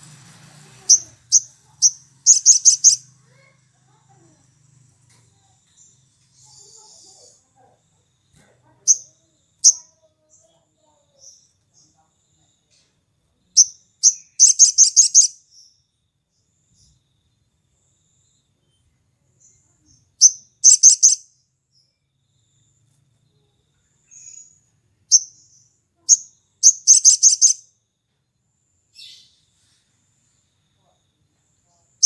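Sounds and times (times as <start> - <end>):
sunbird singing trills: 0.8 - 4.8, 5.4 - 7.4, 8.7 - 12.8, 13.5 - 16.9, 17.9 - 27.8.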